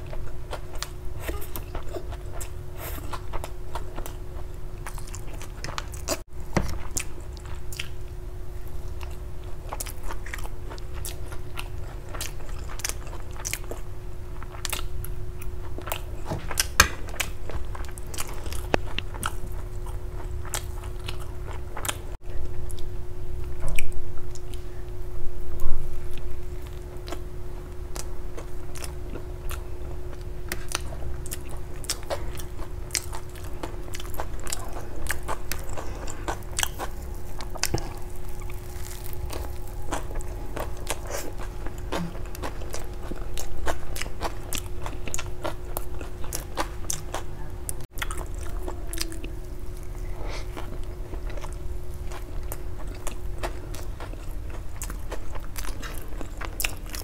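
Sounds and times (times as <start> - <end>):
faint hum: 0.0 - 57.0
biting and chewing bread: 27.9 - 57.0.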